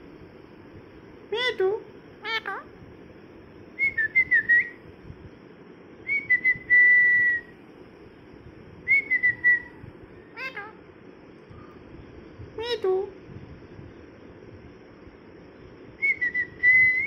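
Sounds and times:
parrot whistling and chirping: 3.8 - 4.8, 6.1 - 7.5, 8.9 - 10.8, 16.0 - 17.0.

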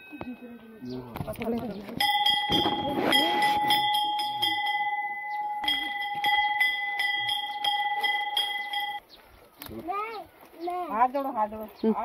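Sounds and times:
temple bell ringing: 2.0 - 9.0.

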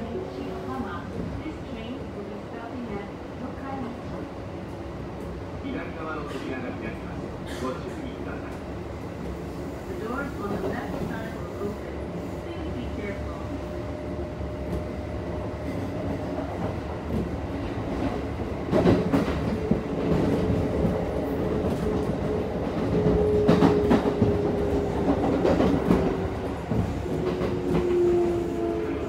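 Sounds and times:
train wheels clickety-clack: 15.6 - 28.8.

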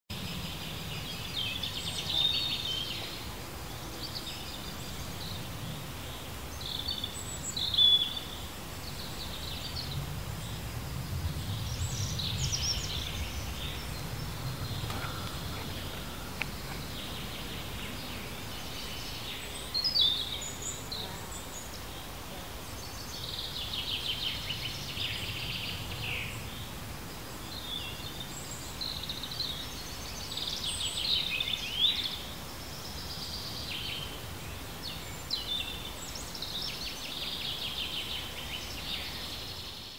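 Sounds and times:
small birds chirping: 0.1 - 39.9
low rumble: 9.7 - 18.9.

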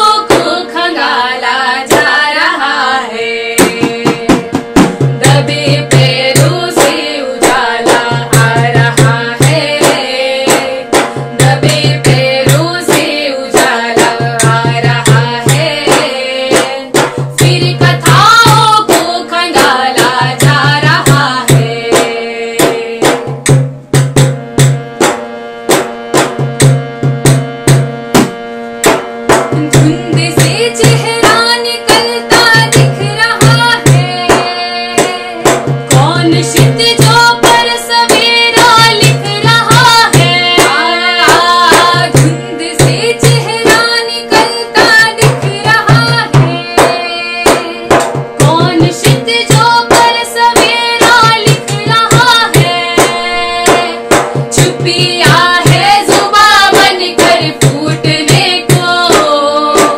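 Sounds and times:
women singing: 0.0 - 23.3, 29.5 - 59.9
held drone: 24.4 - 59.9.

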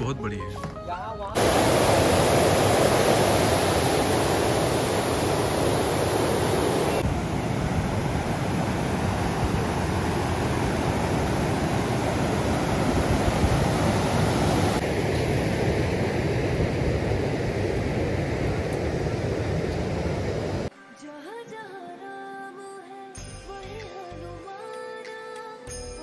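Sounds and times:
water rushing over weir: 1.4 - 16.6.

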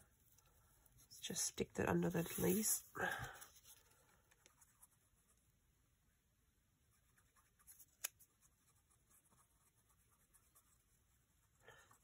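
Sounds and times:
paper rustling: 2.1 - 4.0.

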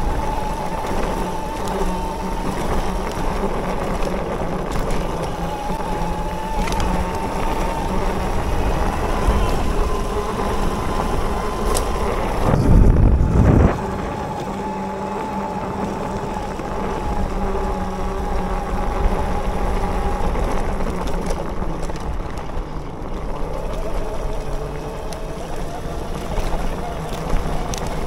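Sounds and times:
electric bike motor whine: 0.0 - 28.0
wind noise on microphone: 0.0 - 28.0
loud low rumble: 12.4 - 14.2.

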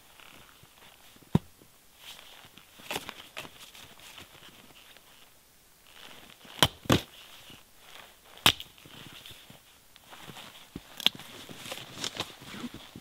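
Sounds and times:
hatchet chopping wood: 6.6 - 7.1, 8.4 - 8.8.

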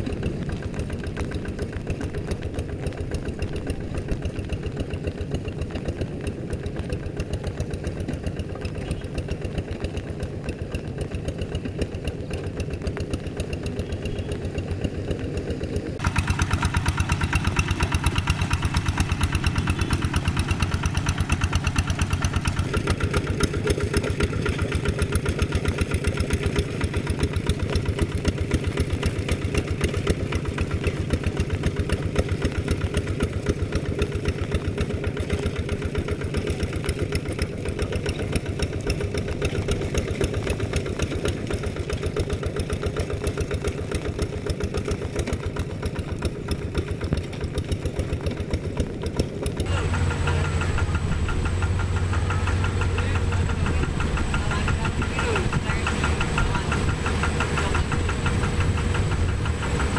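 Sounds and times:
diesel engine chugging: 0.0 - 59.9.

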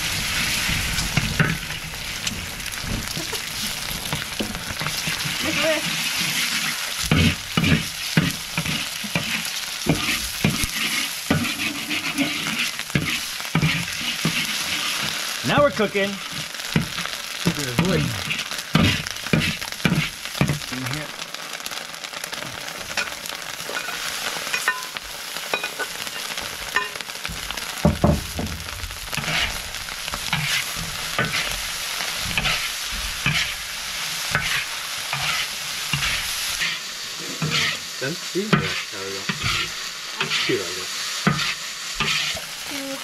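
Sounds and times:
food sizzling in a pan: 0.0 - 43.0
metal spatula scraping a pan: 3.1 - 17.1, 17.7 - 20.6, 23.0 - 27.0, 29.1 - 31.6, 32.2 - 42.6.

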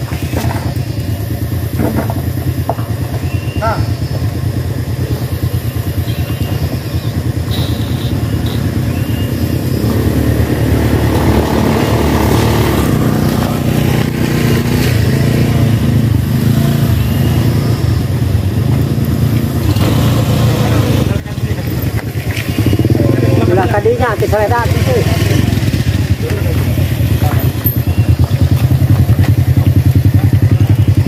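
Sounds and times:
motor scooter passing by: 6.8 - 31.0.

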